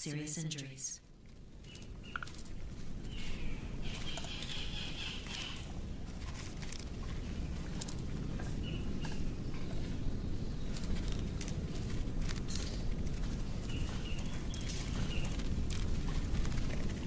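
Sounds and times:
steady low rumble: 0:00.0 - 0:17.0
small clicks and scratching: 0:01.6 - 0:04.6, 0:05.2 - 0:09.8, 0:10.7 - 0:17.0.

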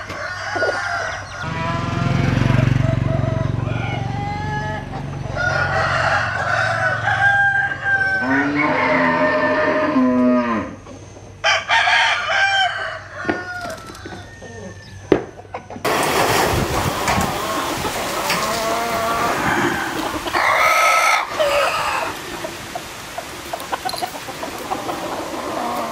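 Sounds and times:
roosters crowing: 0:00.0 - 0:25.9
steady hiss: 0:15.9 - 0:25.9.

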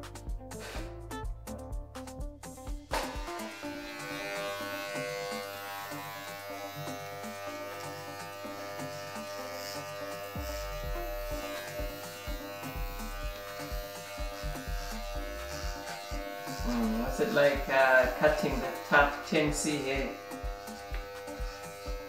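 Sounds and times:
electric hair clippers buzzing: 0:00.5 - 0:01.0, 0:02.9 - 0:22.0.

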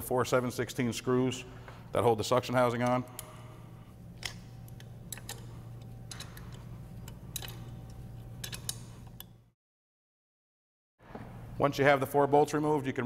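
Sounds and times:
low steady hum: 0:00.0 - 0:09.6, 0:11.0 - 0:13.0
socket ratchet clicking: 0:04.2 - 0:09.4.

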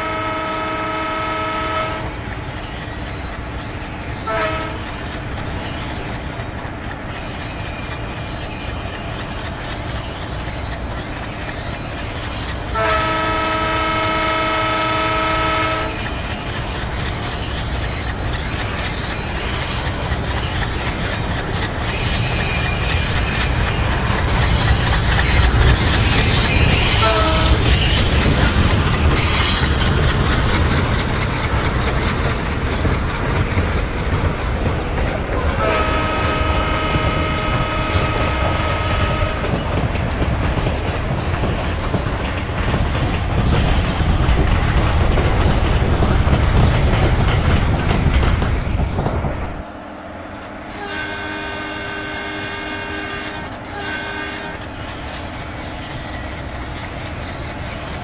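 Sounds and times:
train horn: 0:00.0 - 0:02.2, 0:04.2 - 0:04.9, 0:12.7 - 0:16.1, 0:27.0 - 0:27.9, 0:35.5 - 0:39.6, 0:50.7 - 0:54.7
train wheels rumbling on rails: 0:00.0 - 0:58.0.

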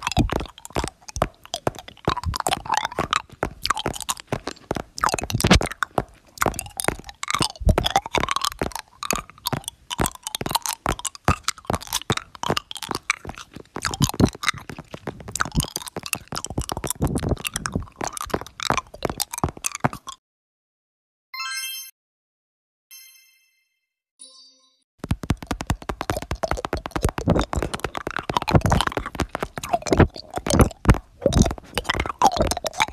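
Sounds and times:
crunching and clicking: 0:00.0 - 0:20.2, 0:25.0 - 0:32.9.

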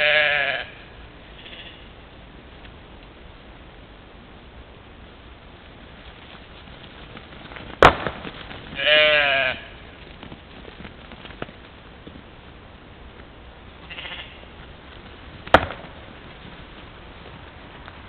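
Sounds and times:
mouflon bleating: 0:00.0 - 0:01.9, 0:08.8 - 0:09.8, 0:13.8 - 0:14.5
sharp knocks: 0:15.5 - 0:16.0.

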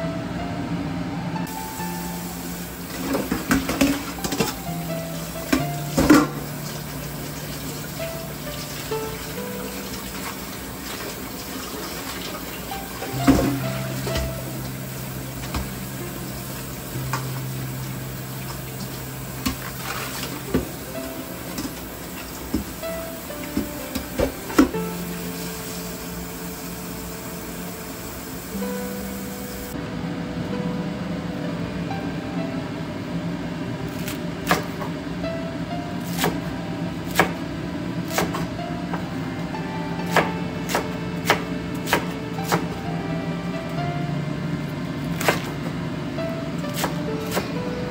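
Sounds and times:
low steady hum: 0:00.0 - 0:47.9
knife chopping cabbage on board: 0:37.1 - 0:37.4, 0:38.1 - 0:38.5, 0:40.1 - 0:42.7, 0:45.2 - 0:45.5, 0:46.7 - 0:47.5.

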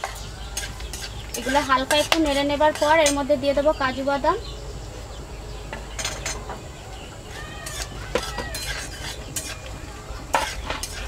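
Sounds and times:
metal spatula clinking and scraping: 0:00.0 - 0:03.3, 0:07.3 - 0:11.0.

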